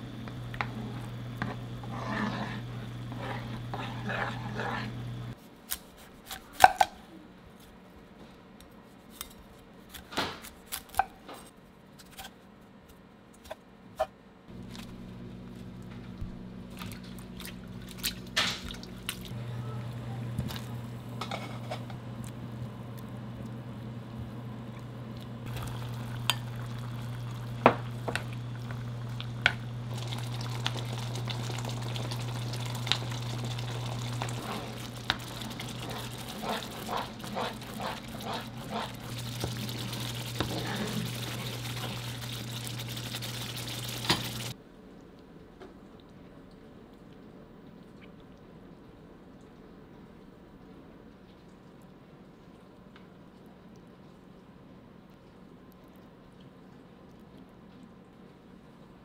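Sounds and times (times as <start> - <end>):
steady low hum: 0.0 - 5.4, 14.5 - 44.6.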